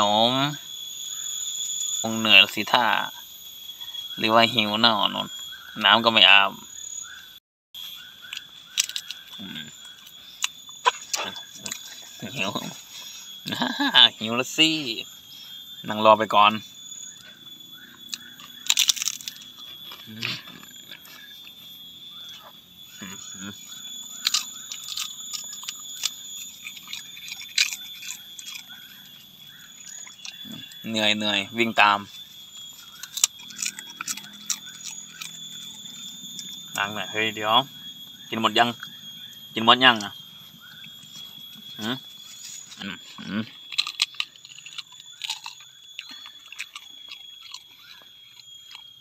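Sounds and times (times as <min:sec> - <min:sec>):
steady high whine: 0:00.0 - 0:49.0
crispy snack crunching: 0:08.2 - 0:13.8, 0:17.8 - 0:21.6, 0:22.3 - 0:37.4, 0:41.0 - 0:49.0.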